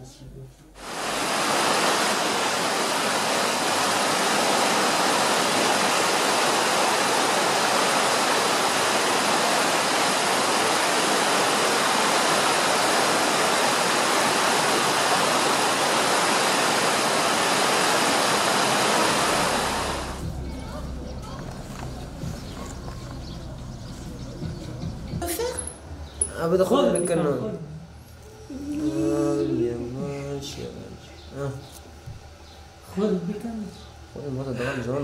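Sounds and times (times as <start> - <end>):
river rushing over rocks: 0.8 - 20.2.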